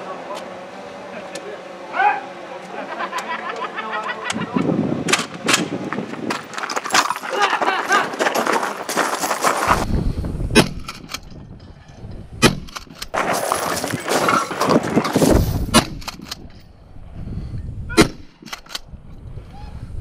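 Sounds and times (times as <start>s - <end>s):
shotgun pump clacks: 15.8s - 16.5s, 18.4s - 18.9s
shotgun shots: 18.0s - 18.5s.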